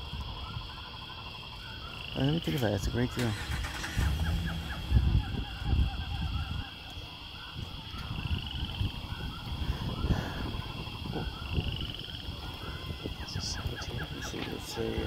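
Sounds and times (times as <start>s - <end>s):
faint animal calls: 0.0s - 15.0s
low microphone rumble: 4.0s - 14.8s.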